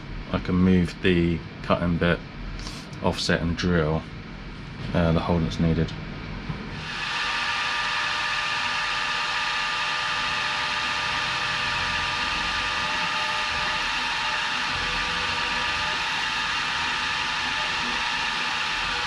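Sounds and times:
drill bit boring into metal: 6.8 - 19.0
milling machine spindle whine: 6.8 - 19.0.

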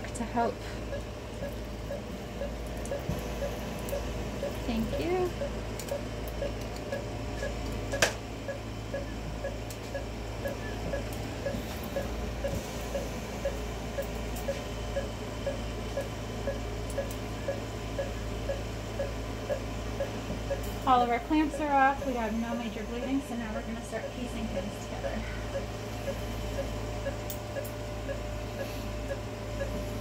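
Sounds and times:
steady low hum: 0.0 - 30.0
patient monitor beeping: 0.3 - 30.0.

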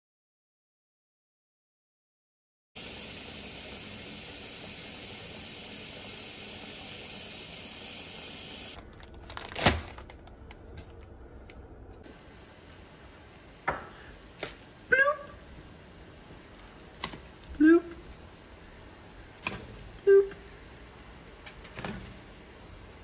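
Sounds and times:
water boiling in a wok: 2.8 - 8.8, 12.0 - 23.0
water pouring from a tap: 2.8 - 8.8.

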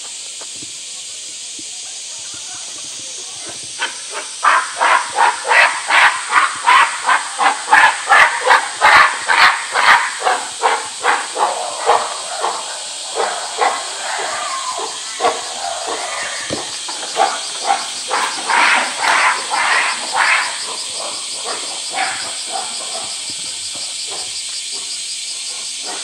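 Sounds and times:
gorilla screaming: 4.4 - 20.8.

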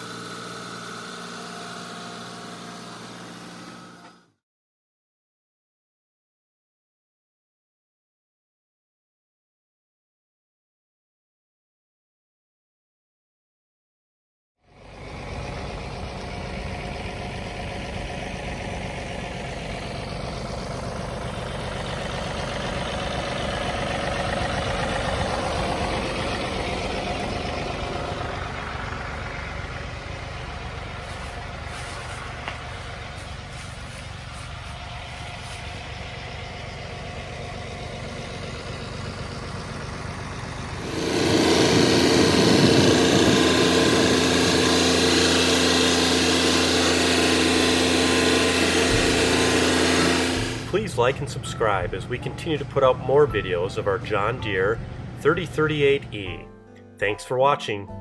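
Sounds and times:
tractor diesel engine running: 0.0 - 4.4, 14.6 - 57.4.

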